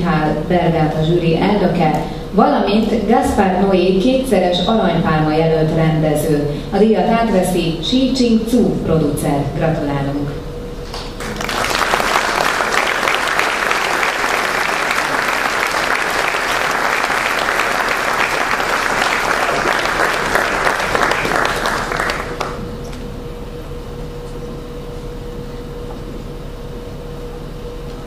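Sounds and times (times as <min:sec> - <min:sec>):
steady hum: 0:00.0 - 0:28.0
audience applauding: 0:10.9 - 0:22.6.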